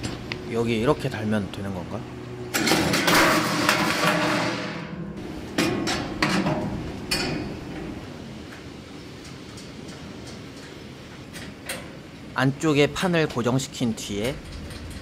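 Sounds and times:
metal grill parts clattering: 0:02.5 - 0:08.5, 0:14.0 - 0:15.0.

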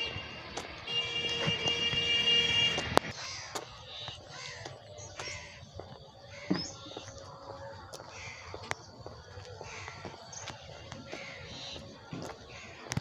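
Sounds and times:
crows cawing: 0:00.0 - 0:13.0.

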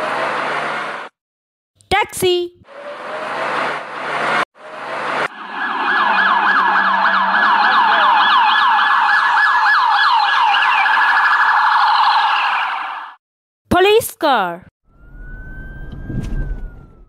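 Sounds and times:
police siren yelping: 0:04.6 - 0:13.2, 0:14.9 - 0:17.0.

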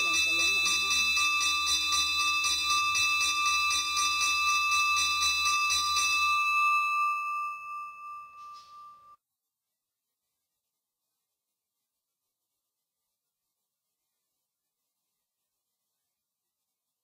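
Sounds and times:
bell ringing: 0:00.0 - 0:09.2.

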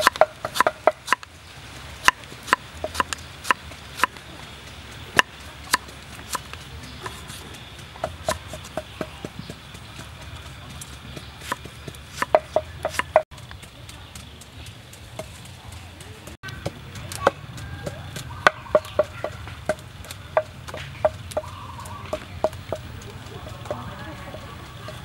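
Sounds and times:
knife chopping on wooden board: 0:00.0 - 0:01.3, 0:02.0 - 0:04.1, 0:05.2 - 0:09.7, 0:11.1 - 0:13.3.

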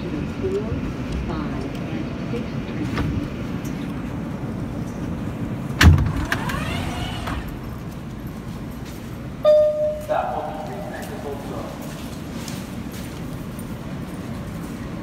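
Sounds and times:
subway car rumbling: 0:00.0 - 0:15.0
brake whine: 0:03.6 - 0:08.9
steady tone: 0:09.4 - 0:10.9.

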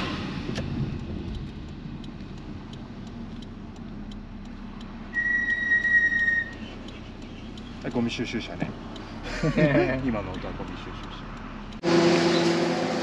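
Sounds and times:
car engine rumble: 0:00.0 - 0:13.0
light ticking: 0:00.4 - 0:11.8
garbage truck warning tone: 0:05.1 - 0:06.6.

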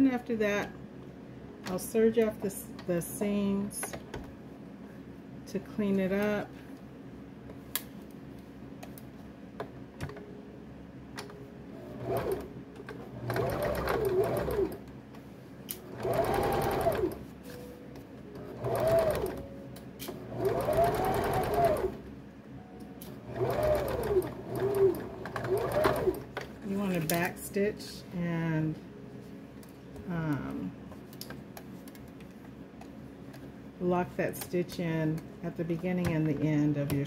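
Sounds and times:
sewing machine stitching: 0:11.8 - 0:12.5, 0:13.1 - 0:14.8, 0:15.9 - 0:17.2, 0:18.4 - 0:19.4, 0:20.3 - 0:22.0, 0:23.3 - 0:26.3.

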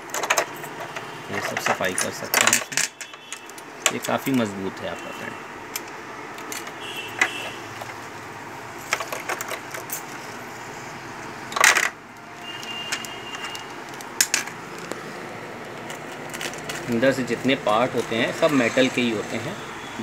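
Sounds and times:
metal parts clicking and clattering: 0:00.0 - 0:05.0, 0:05.7 - 0:08.1, 0:08.8 - 0:10.4, 0:11.5 - 0:15.0, 0:15.6 - 0:18.7.

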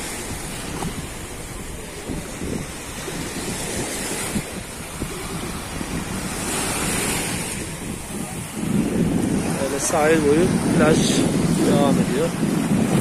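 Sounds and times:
small waves breaking on sand: 0:00.0 - 0:13.0
wind buffeting microphone: 0:00.0 - 0:13.0.

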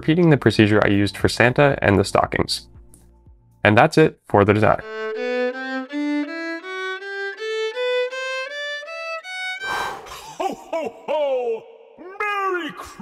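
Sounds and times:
rising melodic instrument notes: 0:04.8 - 0:09.6.

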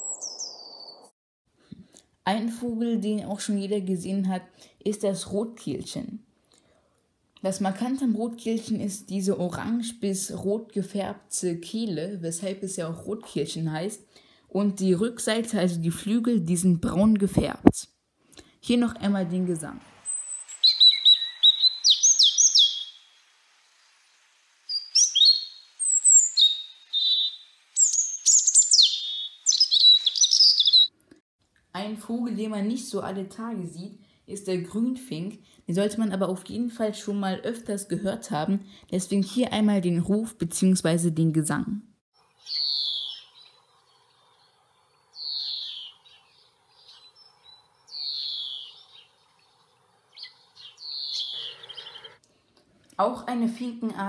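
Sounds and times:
greenfinch calling: 0:00.0 - 0:01.1, 0:20.0 - 0:23.2, 0:24.7 - 0:31.0, 0:42.3 - 0:52.2
robin singing: 0:00.0 - 0:01.1, 0:18.7 - 0:23.2, 0:24.7 - 0:31.0, 0:42.2 - 0:52.2.

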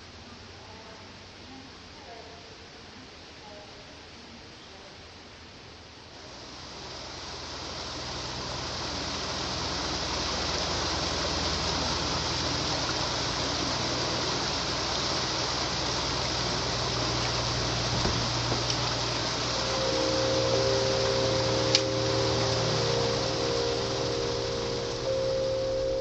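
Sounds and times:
low steady hum: 0:00.0 - 0:26.0
water splashing over rocks: 0:06.6 - 0:26.0.

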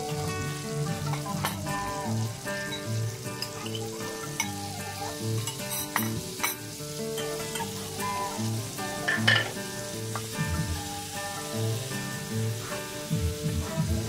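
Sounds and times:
seafood sizzling in a frying pan: 0:00.0 - 0:14.0
soft background music: 0:00.0 - 0:14.0.

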